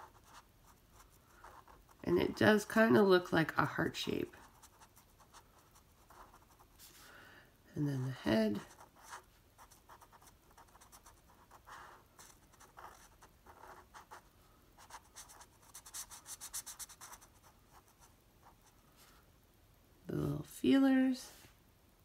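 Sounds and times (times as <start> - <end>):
marker scratching on paper: 0.0 - 2.6, 4.1 - 7.0, 8.5 - 14.2, 14.8 - 18.6.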